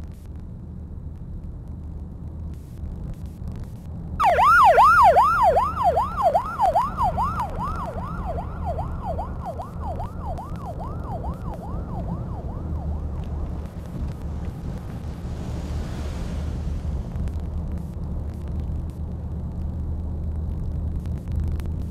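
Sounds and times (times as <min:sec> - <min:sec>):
road traffic rumble: 0:00.0 - 0:21.9
emergency vehicle siren wailing: 0:04.2 - 0:18.0.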